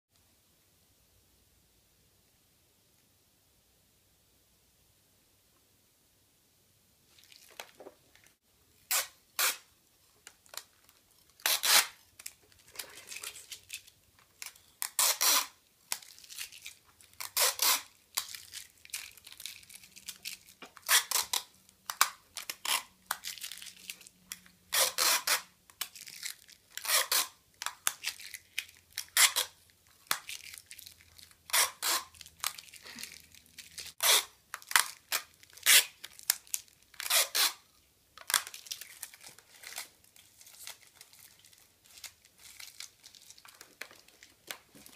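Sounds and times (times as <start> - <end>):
adhesive tape pulled off roll: 8.8 - 9.7, 11.3 - 23.6, 24.7 - 30.6, 31.4 - 33.1, 33.7 - 37.6.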